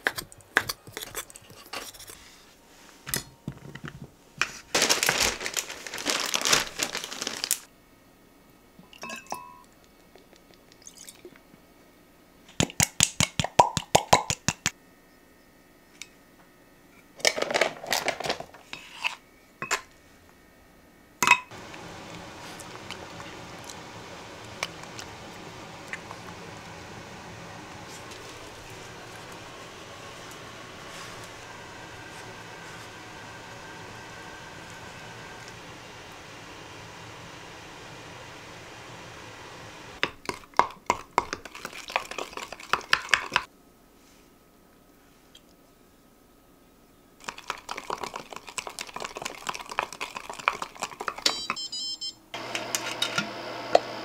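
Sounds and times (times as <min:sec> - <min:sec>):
crinkling or rustling: 0:03.6 - 0:07.7, 0:17.2 - 0:18.7
steady low hiss: 0:18.5 - 0:40.0.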